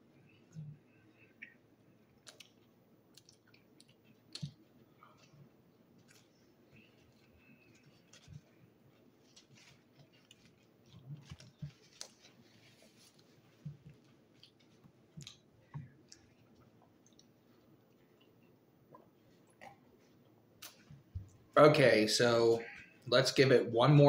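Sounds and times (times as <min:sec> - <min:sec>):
person chewing: 0:00.3 - 0:21.4.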